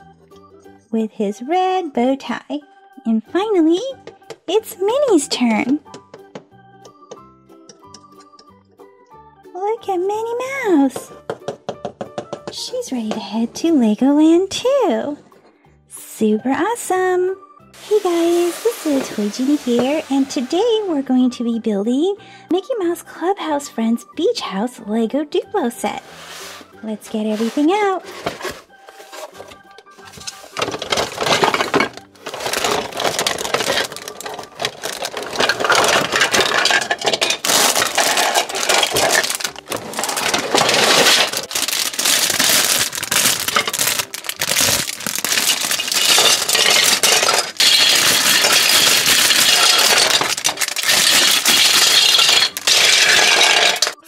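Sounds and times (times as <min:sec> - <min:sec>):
cardboard rustling: 0:26.1 - 0:52.8
plastic bricks clattering on table: 0:30.0 - 0:54.0
plastic bags crinkling and tearing: 0:30.4 - 0:54.0.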